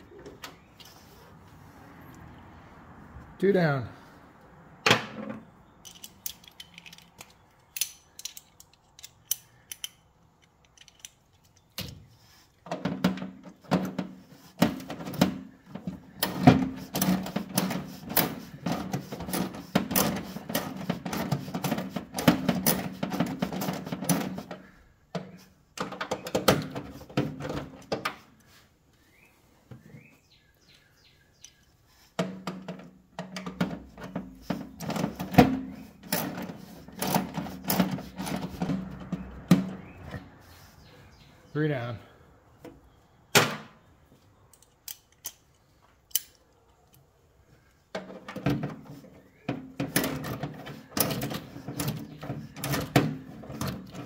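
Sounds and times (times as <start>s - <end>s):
tool clicks: 5.8s - 11.9s.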